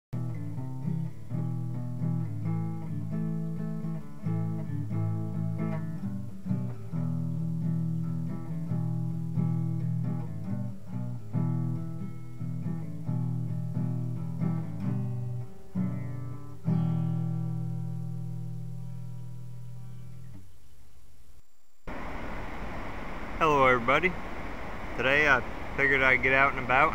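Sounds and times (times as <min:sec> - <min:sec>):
guitar chord ringing: 0:00.2 - 0:20.4
plucked guitar notes: 0:00.2 - 0:20.4.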